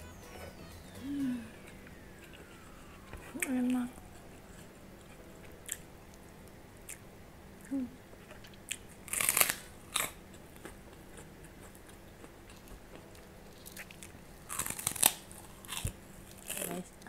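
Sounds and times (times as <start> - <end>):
cracker crunching: 8.2 - 17.0.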